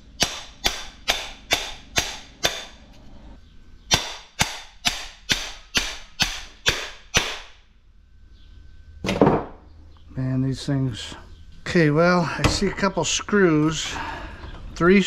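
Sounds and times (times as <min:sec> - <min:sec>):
hammer striking metal: 0:00.2 - 0:02.8, 0:03.9 - 0:07.6.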